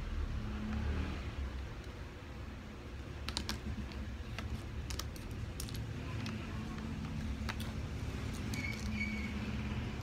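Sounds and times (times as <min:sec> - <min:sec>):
plastic bricks clicking together: 0:03.2 - 0:08.9.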